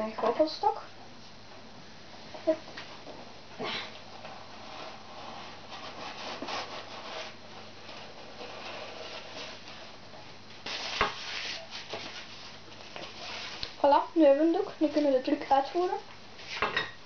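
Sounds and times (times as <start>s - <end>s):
cloth rustling and rubbing: 4.1s - 14.0s.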